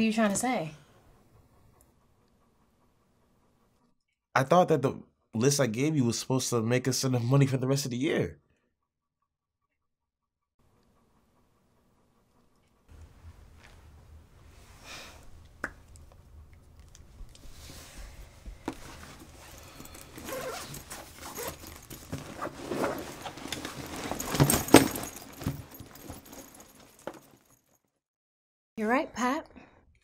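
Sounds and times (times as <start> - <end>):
low room hum: 10.7 - 27.3
rustling and light knocks: 17.0 - 27.6.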